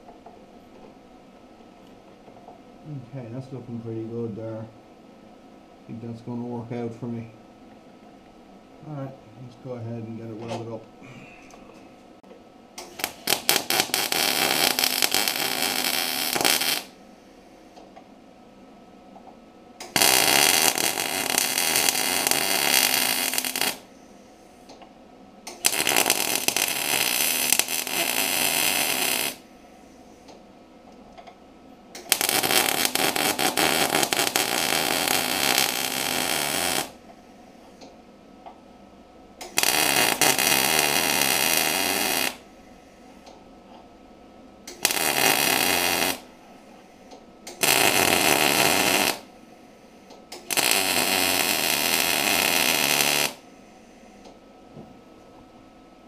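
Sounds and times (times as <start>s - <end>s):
welding arc crackling and hissing: 12.8s - 17.0s, 19.8s - 23.9s, 25.5s - 29.4s, 32.0s - 37.0s, 39.4s - 42.5s, 44.7s - 46.3s, 47.4s - 49.3s, 50.3s - 53.5s.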